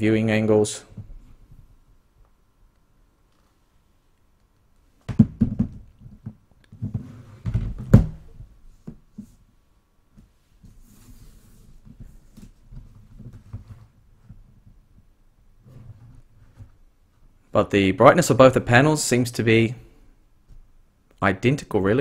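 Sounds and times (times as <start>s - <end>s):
handling knocks and thumps: 5.0s - 9.4s.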